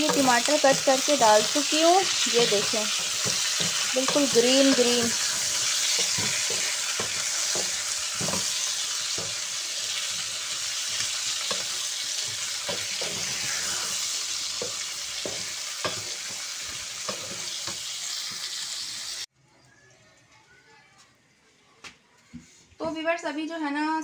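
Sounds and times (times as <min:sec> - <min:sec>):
wooden spatula scraping a pan: 0:00.0 - 0:18.6
potato slices sizzling in oil: 0:00.0 - 0:19.3.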